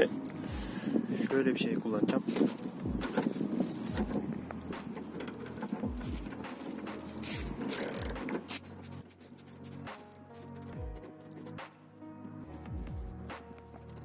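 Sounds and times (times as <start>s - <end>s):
ratchet wrench clicking: 2.3s - 11.8s.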